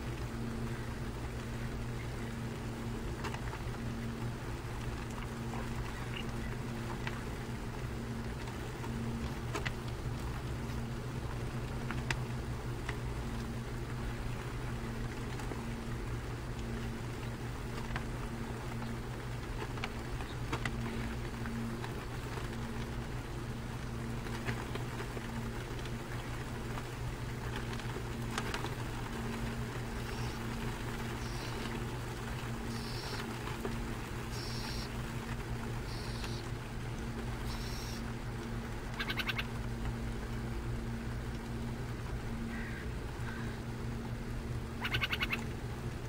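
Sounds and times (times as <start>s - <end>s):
low engine hum: 0.0s - 46.0s
faint ticks: 11.6s - 13.5s, 23.8s - 40.0s.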